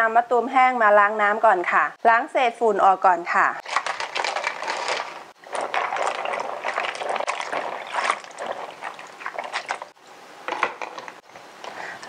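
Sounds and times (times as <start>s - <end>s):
water splashing in a bowl: 3.6s - 10.0s.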